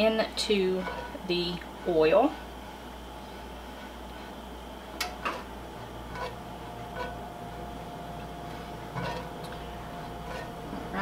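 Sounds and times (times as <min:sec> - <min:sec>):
low background hum: 0:00.0 - 0:11.0
spatula tapping and scraping pan: 0:06.1 - 0:07.2, 0:08.9 - 0:11.0.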